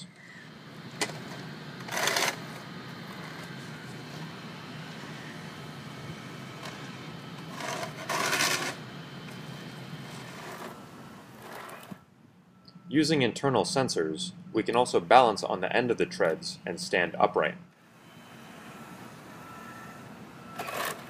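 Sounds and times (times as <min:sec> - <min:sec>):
robot treads whirring on concrete: 0:00.9 - 0:04.3, 0:06.5 - 0:12.0.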